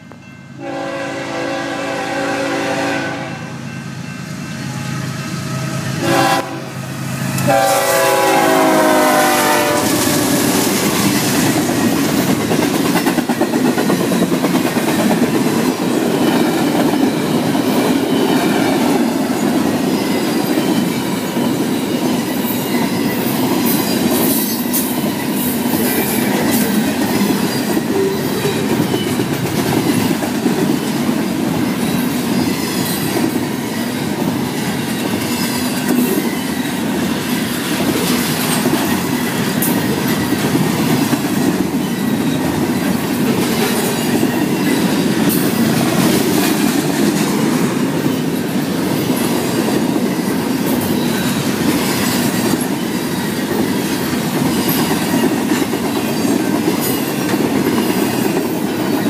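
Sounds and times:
freight train rumbling: 0:00.0 - 0:59.0
high wheel squeal: 0:31.8 - 0:36.9.

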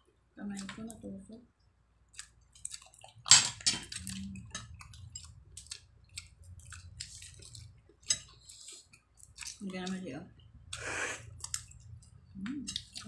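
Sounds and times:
chewing: 0:02.1 - 0:09.8, 0:10.7 - 0:13.0.

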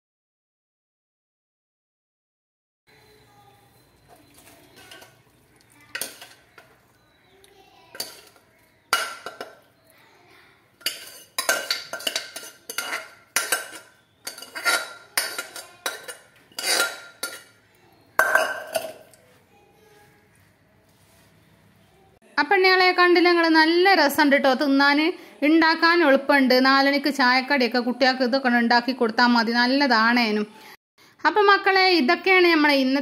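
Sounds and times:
metal spoon clanking in a pot: 0:04.0 - 0:07.2, 0:07.9 - 0:09.8, 0:10.8 - 0:19.2.

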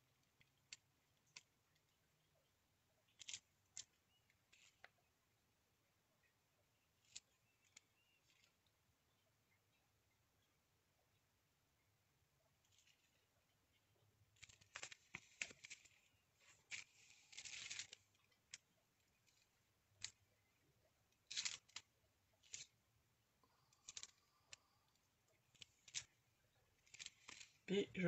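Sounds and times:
card rustling on plastic sheet: 0:03.1 - 0:04.9, 0:12.7 - 0:13.2, 0:14.4 - 0:20.2, 0:21.2 - 0:22.8, 0:23.6 - 0:24.9, 0:25.5 - 0:26.2, 0:26.8 - 0:27.7.

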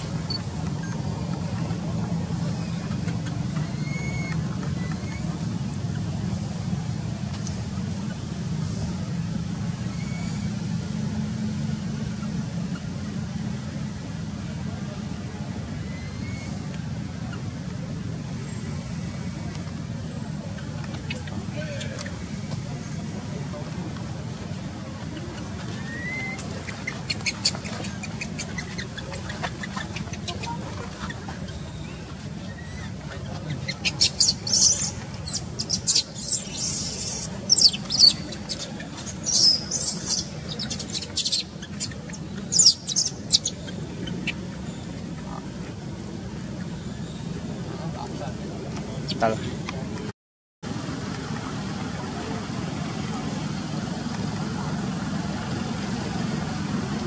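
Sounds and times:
low rumble of traffic: 0:00.0 - 0:57.0
faint high chirp: 0:03.6 - 0:05.4, 0:09.8 - 0:10.6, 0:25.1 - 0:45.0
newborn monkey squealing: 0:25.8 - 0:30.5, 0:33.7 - 0:43.6.

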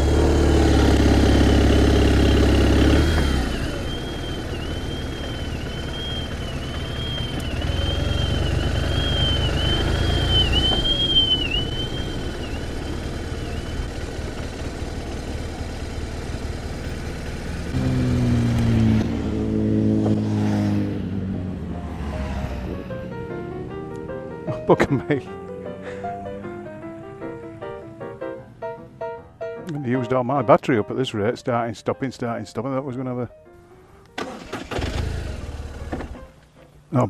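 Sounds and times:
hum with steady pitches: 0:00.0 - 0:20.3
motorcycle engines rumbling: 0:00.0 - 0:27.7, 0:34.7 - 0:37.0.

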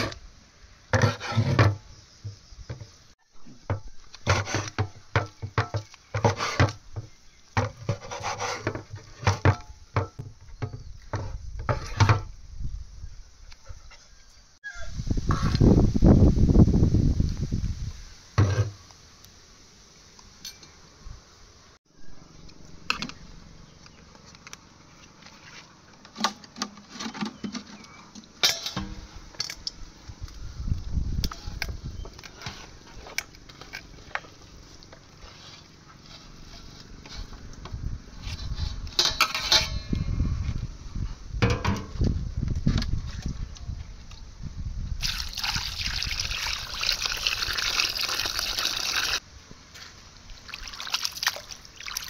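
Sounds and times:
metal utensils clinking on pots: 0:28.4 - 0:28.9, 0:38.9 - 0:39.9.

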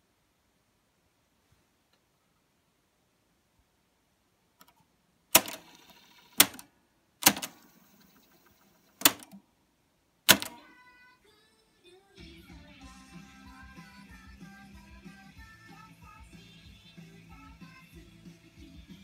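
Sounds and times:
cassette deck transport clacking: 0:09.0 - 0:09.4, 0:10.3 - 0:10.6.

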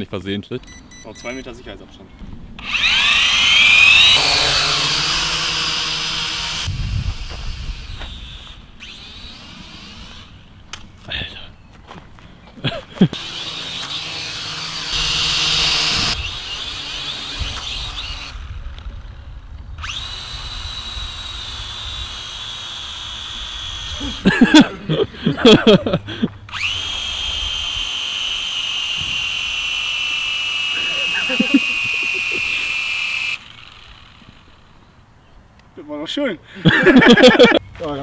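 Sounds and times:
toy quadcopter whining: 0:02.6 - 0:10.6, 0:13.1 - 0:24.4, 0:26.4 - 0:35.0.

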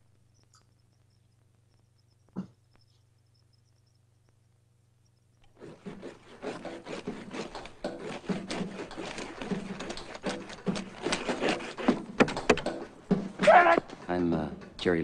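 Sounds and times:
ice scraper on windshield: 0:05.6 - 0:12.2.

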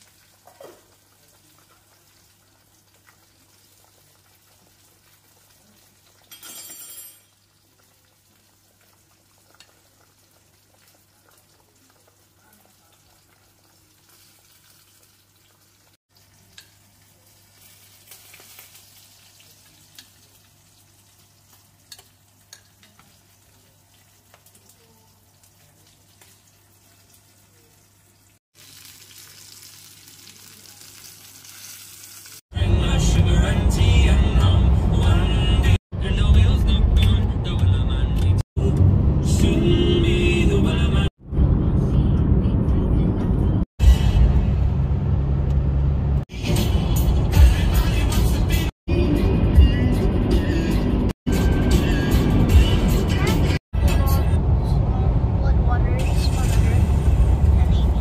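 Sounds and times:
soup simmering bubbling: 0:00.0 - 0:06.2, 0:07.5 - 0:17.2.

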